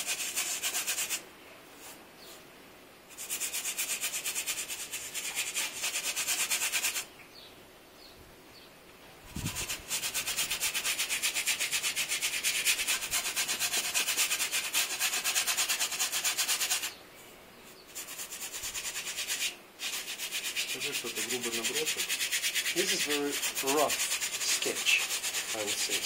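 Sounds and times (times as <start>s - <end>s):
paintbrush scrubbing on canvas: 0.0s - 1.2s, 1.8s - 2.4s, 3.1s - 7.1s, 9.3s - 17.0s, 17.9s - 26.0s.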